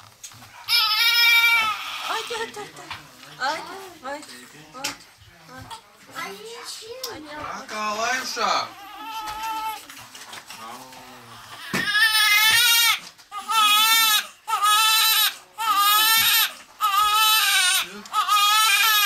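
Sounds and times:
newborn baby crying: 0:00.6 - 0:02.5, 0:08.6 - 0:09.8, 0:10.6 - 0:19.0.

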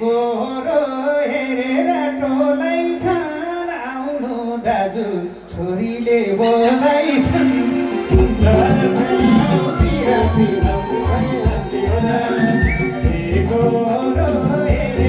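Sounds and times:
man singing: 0:00.0 - 0:15.0
musical accompaniment: 0:06.2 - 0:15.0
woman singing: 0:06.4 - 0:15.0.

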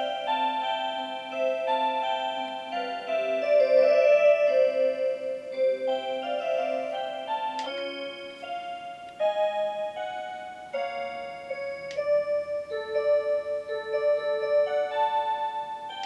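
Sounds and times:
electronic clock melody: 0:00.0 - 0:16.0.

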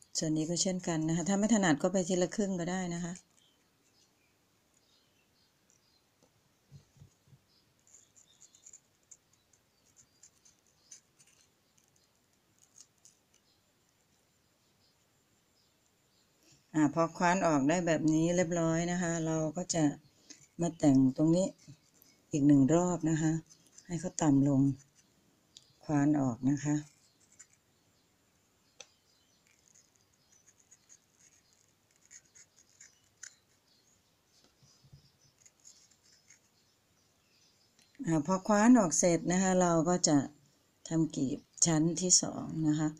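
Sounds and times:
knife scratching into watermelon: 0:07.8 - 0:13.6, 0:29.3 - 0:33.8, 0:35.2 - 0:36.6.

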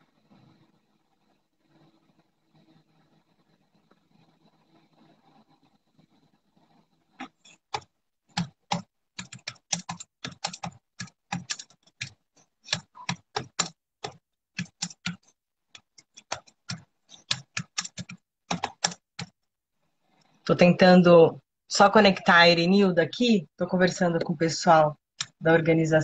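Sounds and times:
keyboard typing: 0:07.2 - 0:19.4.

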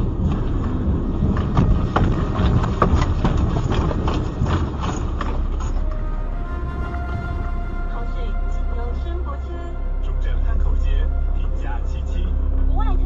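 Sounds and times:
knocks and rattles: 0:00.0 - 0:06.1
loud low rumble: 0:00.0 - 0:13.0
music: 0:01.3 - 0:13.0.

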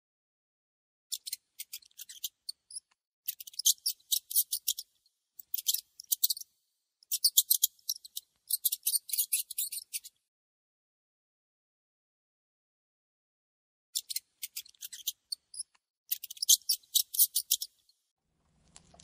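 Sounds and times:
hamster nibbling and crunching food: 0:18.3 - 0:19.0.

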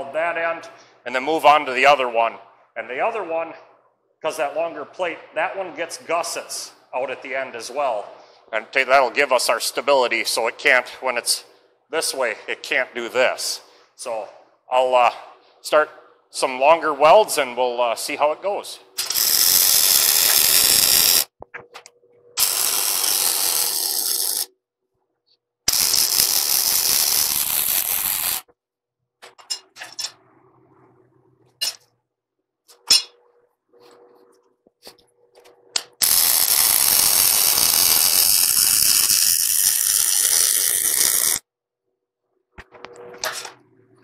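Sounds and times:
welder arc crackling and hissing: 0:19.0 - 0:21.4, 0:22.4 - 0:24.5, 0:25.7 - 0:28.5, 0:36.0 - 0:41.4
sharp clicks and knocks: 0:21.4 - 0:22.0.

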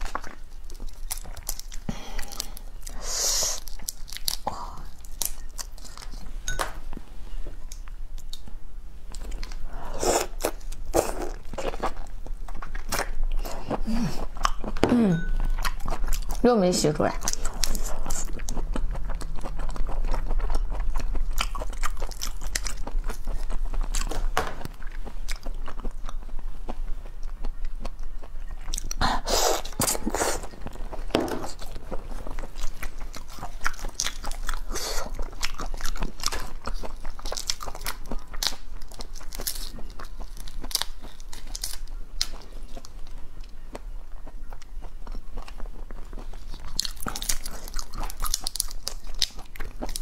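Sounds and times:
chewing: 0:00.0 - 0:07.0, 0:07.6 - 0:16.5, 0:17.1 - 0:50.0
shell cracking and crunching: 0:03.6 - 0:06.1, 0:35.4 - 0:42.4.

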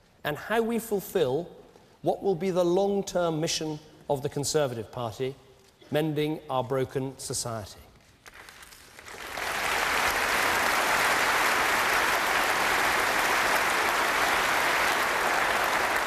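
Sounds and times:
large audience applauding: 0:08.3 - 0:16.0.

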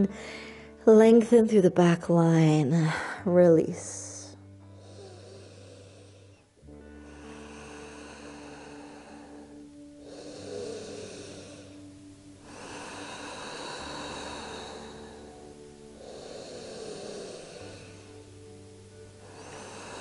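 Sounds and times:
person breathing deeply: 0:00.0 - 0:00.8, 0:04.3 - 0:18.4, 0:19.2 - 0:20.0
soft background music: 0:00.0 - 0:20.0.

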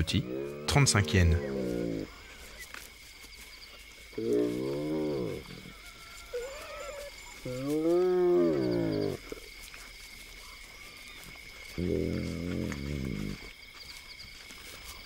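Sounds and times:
hyena calling: 0:00.0 - 0:02.7, 0:04.1 - 0:09.4.

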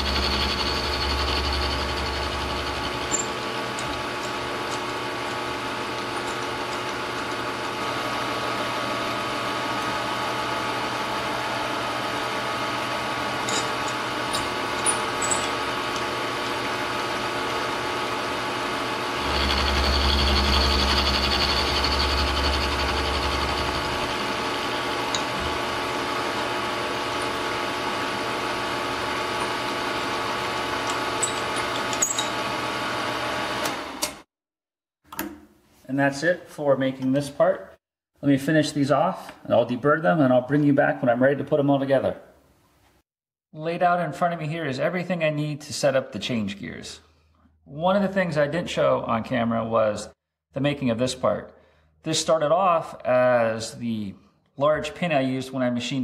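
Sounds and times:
milling machine humming: 0:00.0 - 0:34.1.

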